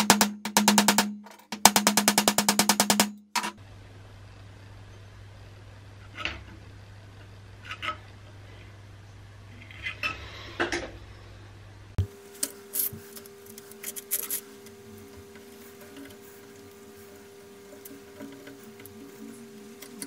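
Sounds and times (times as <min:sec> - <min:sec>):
steady low hum: 0:00.0 - 0:20.0
metal parts clinking and scraping: 0:12.7 - 0:14.5.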